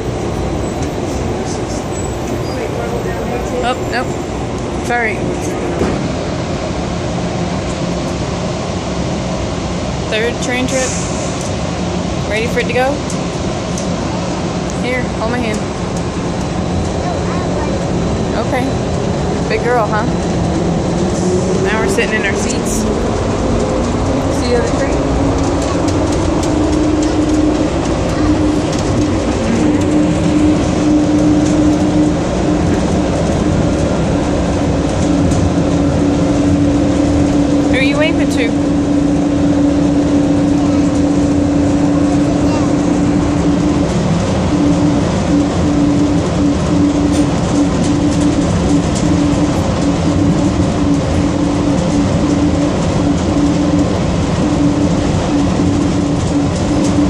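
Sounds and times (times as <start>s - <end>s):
train car rumble and hiss: 0.0s - 57.0s
low hum: 17.9s - 57.0s.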